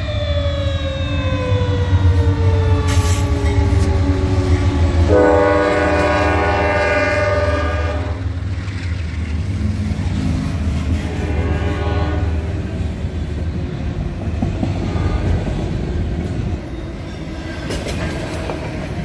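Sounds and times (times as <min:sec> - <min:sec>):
train rumble and rolling wheels: 0:00.0 - 0:19.0
locomotive air horn: 0:05.0 - 0:08.3, 0:11.0 - 0:12.7.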